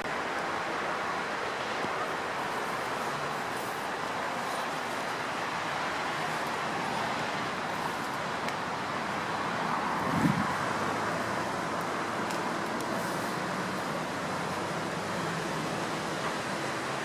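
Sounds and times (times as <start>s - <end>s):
distant road traffic hum: 0.0s - 17.0s.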